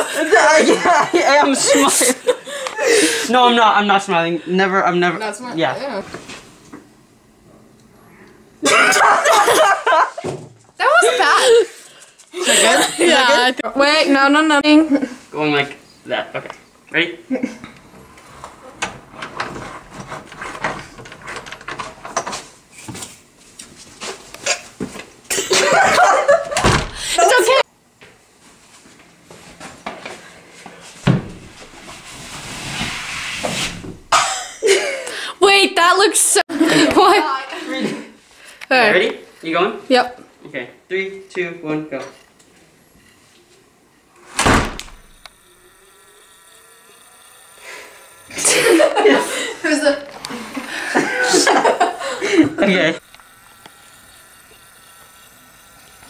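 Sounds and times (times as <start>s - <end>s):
loud thump: 31.0s - 31.6s, 44.4s - 45.2s
faint steady whine: 42.1s - 56.0s.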